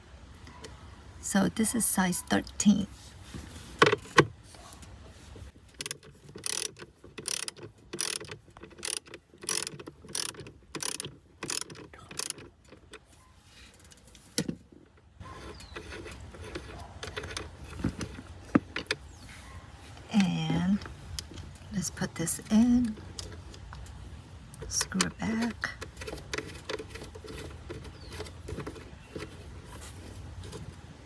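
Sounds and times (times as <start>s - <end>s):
socket ratchet clicking: 5.8s - 13.0s.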